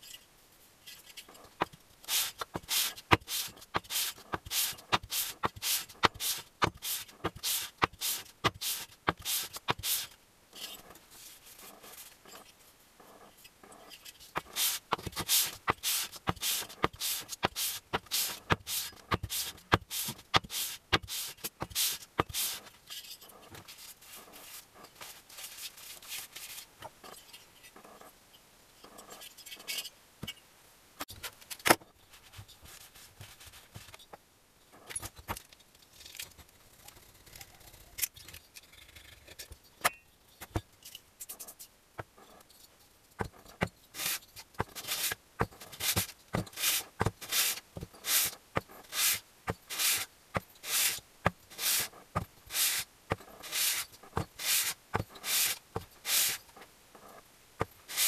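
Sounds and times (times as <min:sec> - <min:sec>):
scrapes and clicks of engine parts: 0:00.0 - 0:09.8, 0:10.5 - 0:28.2, 0:28.8 - 0:30.4, 0:31.0 - 0:48.9
metal rasping on abrasive paper: 0:01.6 - 0:12.2, 0:14.3 - 0:22.7, 0:43.5 - 0:56.6, 0:57.7 - 0:58.0.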